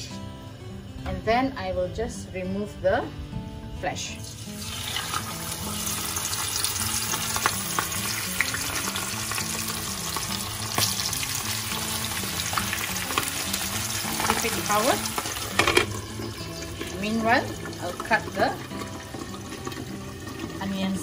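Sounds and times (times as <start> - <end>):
fish deep-frying in hot oil: 4.2 - 21.0.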